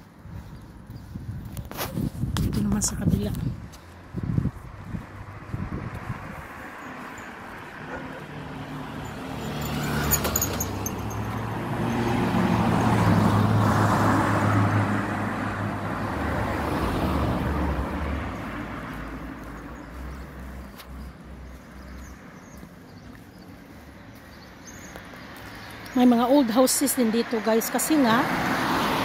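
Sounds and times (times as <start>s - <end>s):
car driving past: 5.1s - 19.8s, 28.2s - 29.0s.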